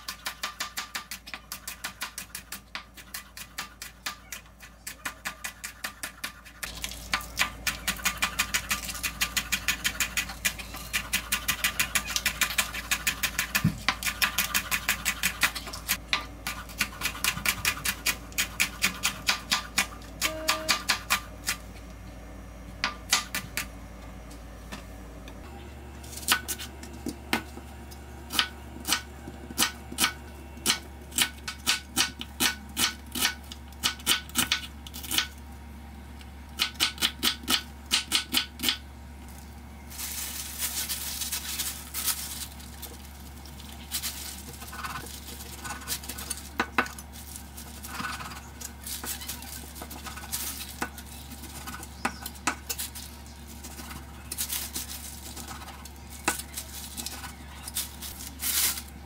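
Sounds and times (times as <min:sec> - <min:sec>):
rustling: 0:39.3 - 0:51.4, 0:52.8 - 0:59.0.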